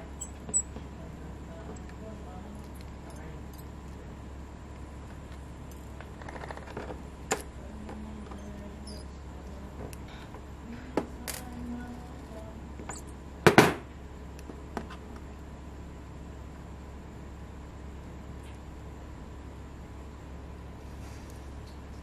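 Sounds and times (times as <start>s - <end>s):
low steady hum: 0.0s - 22.0s.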